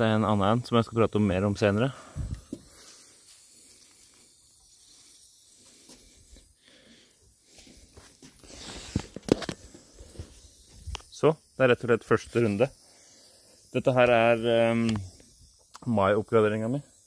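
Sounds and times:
brief hiss: 7.6 - 9.6
camera handling rustle: 7.9 - 11.1.

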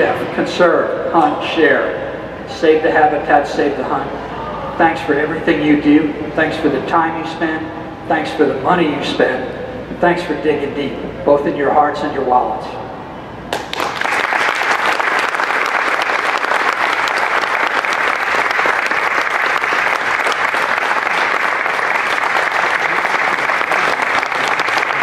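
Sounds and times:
audience applauding: 13.5 - 25.0.

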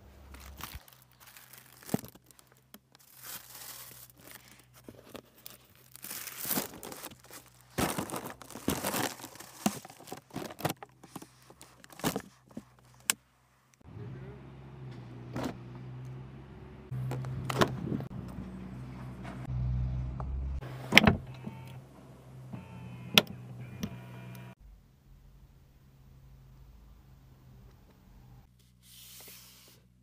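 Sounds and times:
tissue paper crinkling: 0.3 - 12.6
cardboard box rustling: 0.4 - 12.9.

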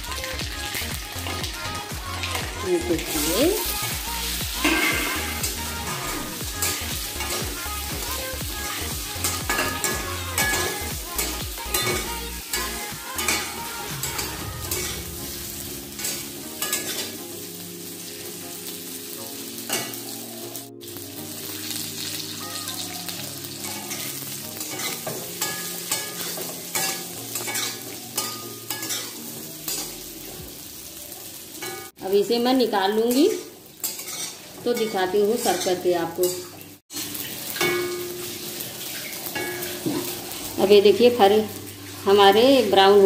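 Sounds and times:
oil sizzling: 0.0 - 43.0
metal spatula scraping pan: 4.6 - 7.4.

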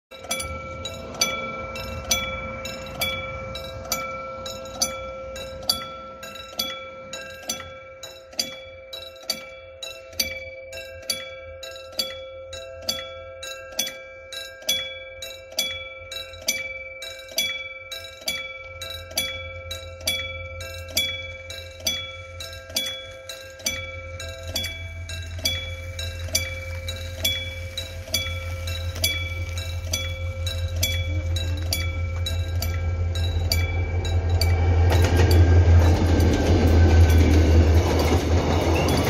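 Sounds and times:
level crossing warning bell ringing: 0.1 - 39.0.

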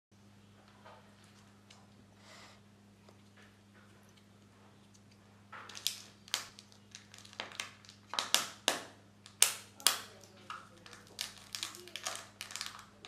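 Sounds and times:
foil and plastic crinkling: 5.7 - 8.6, 10.1 - 13.0.

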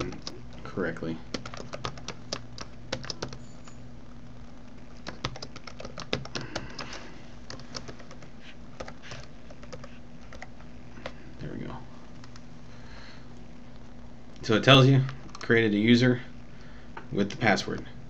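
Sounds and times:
keyboard typing: 0.0 - 0.6, 1.3 - 3.8, 5.0 - 10.5
low steady hum: 0.0 - 18.0.

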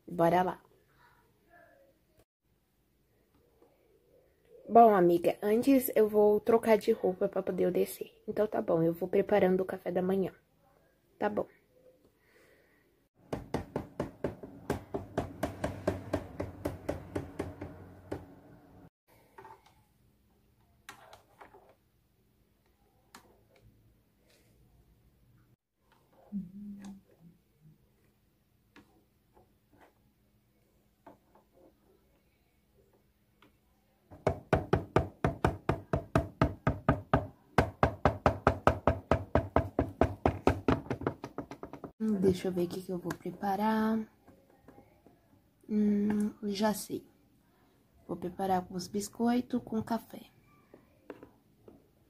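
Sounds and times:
plastic doll feet tapping on plastic: 37.9 - 42.0.

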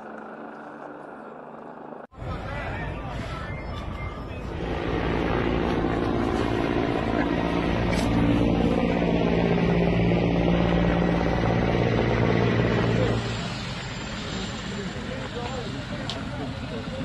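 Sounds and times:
engine droning: 4.3 - 17.0.

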